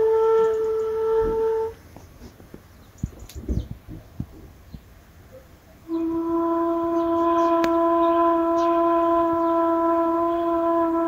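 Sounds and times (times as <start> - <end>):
long wind instrument note: 0.0 - 1.8, 5.9 - 11.0.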